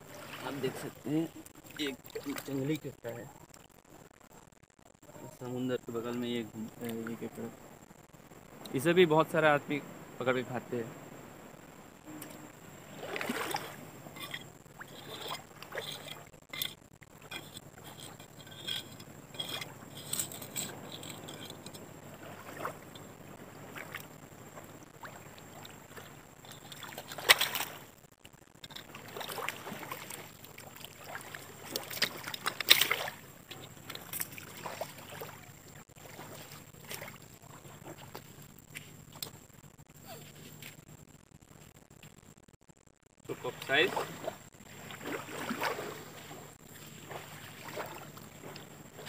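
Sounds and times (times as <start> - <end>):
feet wading in water: 0.0 - 2.6, 12.2 - 28.0, 28.7 - 38.4, 43.3 - 49.0
seawater sloshing and splashing: 0.0 - 2.7, 12.8 - 28.0, 28.7 - 38.4, 43.3 - 49.0.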